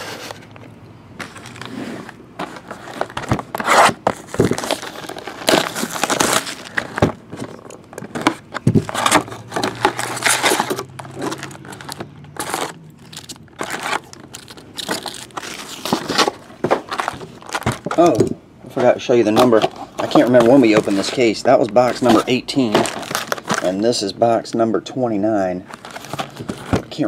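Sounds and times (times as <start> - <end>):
plastic wrap crinkling and tearing: 2.6 - 7.2, 8.2 - 18.2, 19.3 - 23.9, 25.7 - 27.0.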